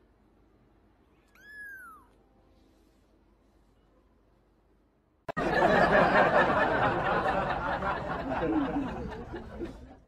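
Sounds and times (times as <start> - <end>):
people laughing: 5.3 - 10.0.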